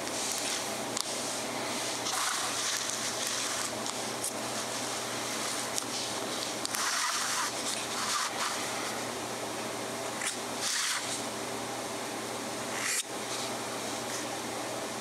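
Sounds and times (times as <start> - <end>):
steady hum: 0.0 - 15.0
pen nib scratching on paper: 6.7 - 8.6.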